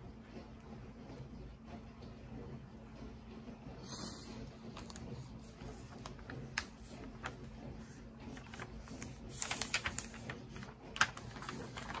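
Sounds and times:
paper pages rustling: 4.7s - 12.0s.

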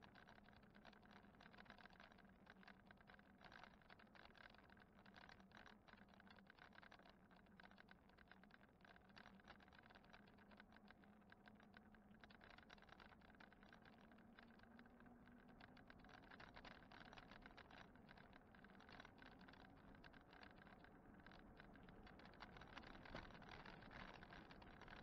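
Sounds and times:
bike rattling and ticking: 12.6s - 25.0s.

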